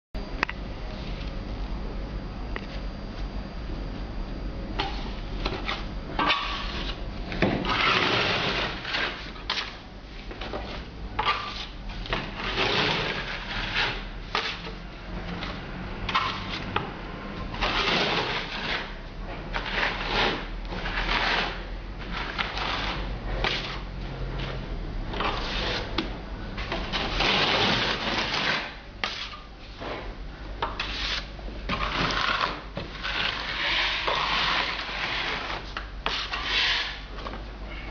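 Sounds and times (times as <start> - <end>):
steel trowel scraping render: 7.6 - 9.8, 12.4 - 14.8, 17.6 - 23.8, 25.2 - 25.9, 26.9 - 29.4, 30.8 - 37.1.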